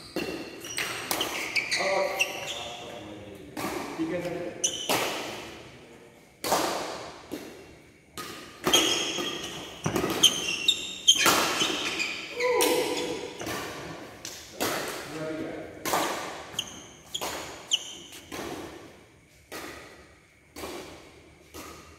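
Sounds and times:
shoe squeaks on court: 0.0s - 3.1s, 4.6s - 5.3s, 8.6s - 13.6s, 16.4s - 18.5s
racket striking shuttlecock: 0.1s - 1.6s, 3.5s - 5.6s, 6.4s - 15.1s, 15.8s - 18.9s, 19.5s - 21.9s.

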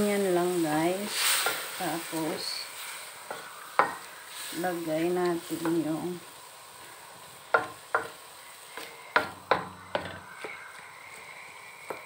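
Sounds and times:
faint sizzle: 0.0s - 12.0s
wooden spatula tapping a wok: 3.3s - 4.1s, 5.2s - 5.9s, 7.5s - 12.0s.

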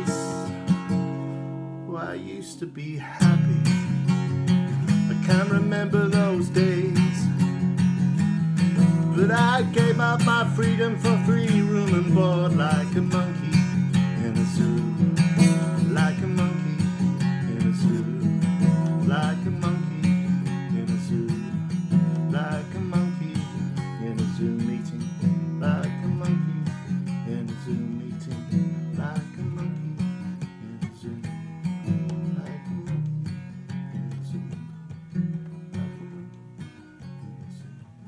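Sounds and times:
acoustic guitar strumming: 0.0s - 38.0s.

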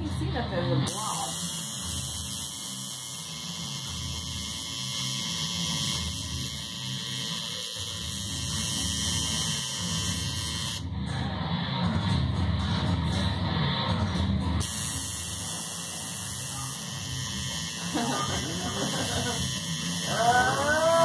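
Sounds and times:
tattoo machine buzzing: 0.8s - 11.0s, 14.6s - 21.0s.

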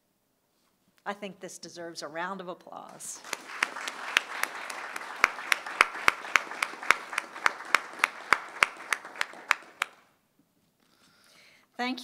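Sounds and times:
loud close hand claps: 2.9s - 10.1s
soft applause: 2.9s - 10.1s.

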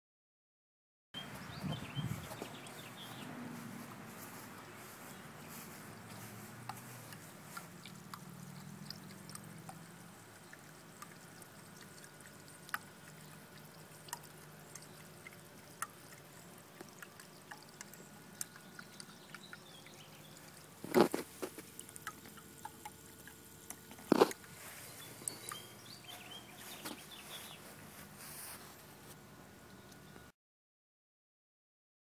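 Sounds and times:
water trickling: 1.2s - 30.2s
small water drips: 1.2s - 30.3s.

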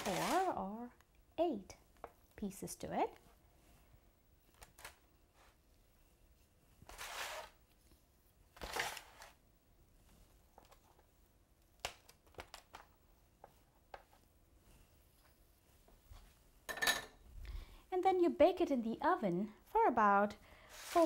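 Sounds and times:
knife scraping dough: 6.8s - 7.6s.

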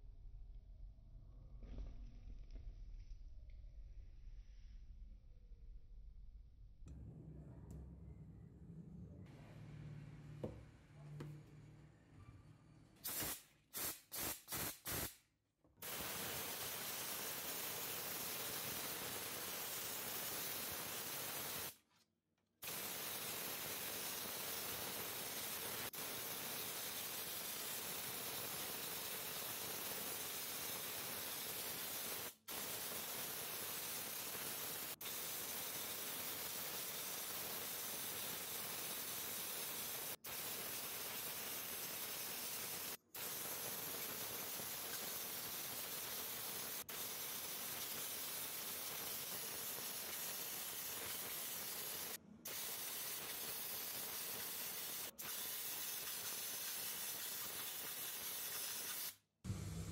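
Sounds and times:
pressure washer spray hissing: 13.0s - 15.2s, 15.8s - 21.8s, 22.6s - 59.2s.

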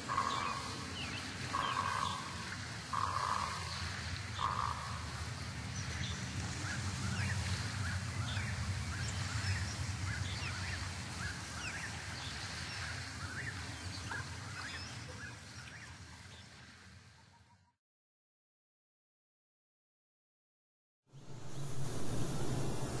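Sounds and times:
steady low rumble: 5.0s - 12.3s, 21.1s - 23.0s.

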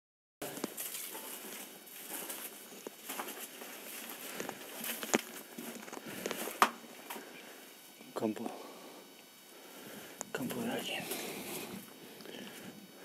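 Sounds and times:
dry stalks crackling: 0.4s - 7.8s
footsteps crunching through dry grass: 0.4s - 7.8s.

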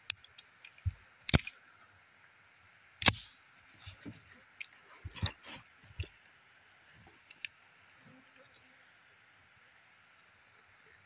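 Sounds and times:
light pistol clicks: 1.2s - 1.6s, 3.0s - 3.4s.

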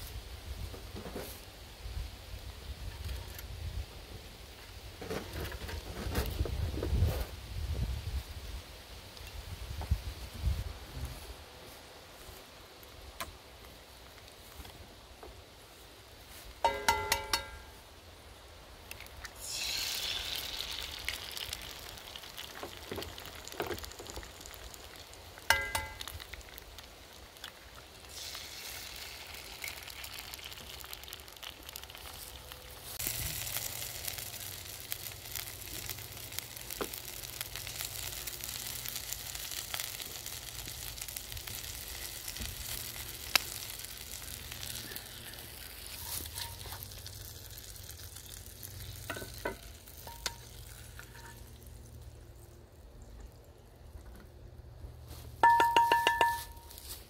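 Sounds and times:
egg and sausages sizzling in skillet: 16.3s - 17.9s, 18.9s - 52.6s
sharp ringing clinks: 55.4s - 56.7s.

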